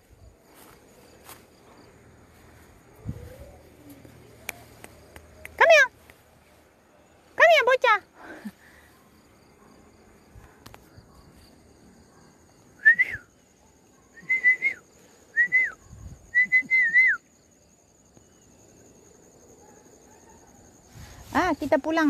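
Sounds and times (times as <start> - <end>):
person whistling: 12.8 - 13.3, 14.2 - 17.2.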